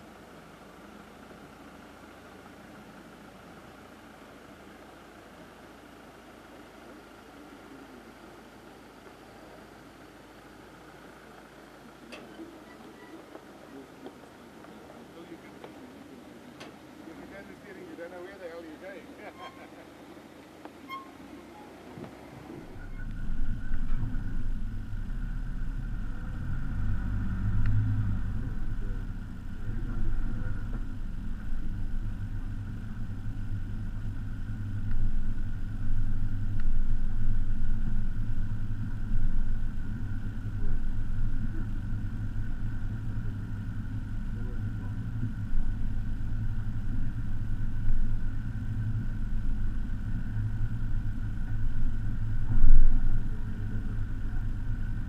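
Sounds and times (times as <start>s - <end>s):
faint steady whine: 0.0s - 55.0s
diesel engine pulling under load: 16.6s - 20.1s
vehicle bump: 20.6s - 25.5s, 28.5s - 55.0s.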